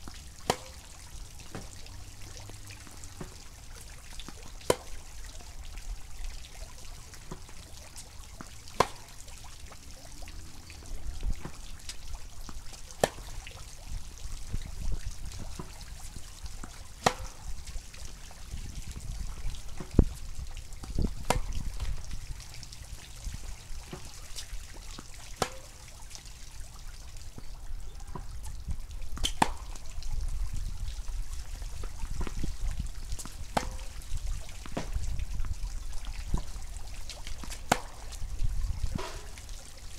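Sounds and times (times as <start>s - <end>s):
tennis ball struck by racquets: 0.4s - 0.8s, 1.5s - 1.8s, 4.7s - 5.0s, 8.4s - 9.1s, 13.0s - 13.4s, 16.6s - 17.4s, 20.9s - 21.6s, 25.4s - 25.8s, 29.2s - 29.8s, 33.2s - 34.0s, 37.4s - 38.1s, 38.9s - 39.4s.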